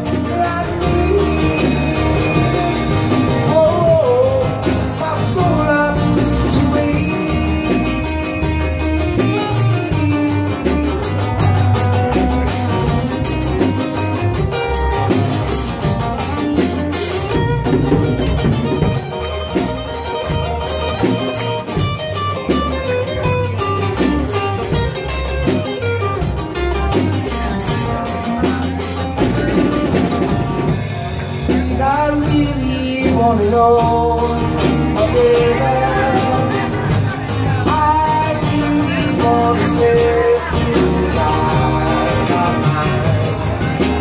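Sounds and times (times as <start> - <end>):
electric bass: 0.0 - 44.0
electric guitar: 0.0 - 44.0
strummed acoustic guitar: 0.0 - 44.0.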